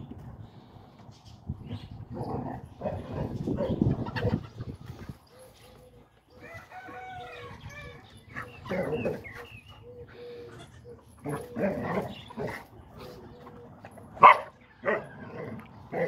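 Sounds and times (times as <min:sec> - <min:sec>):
dog barking: 0:14.2 - 0:15.0.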